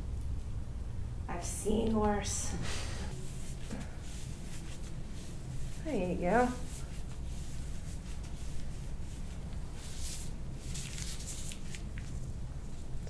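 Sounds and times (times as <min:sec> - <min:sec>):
low room hum: 0:00.0 - 0:13.0
soft rustling and handling: 0:03.1 - 0:13.0.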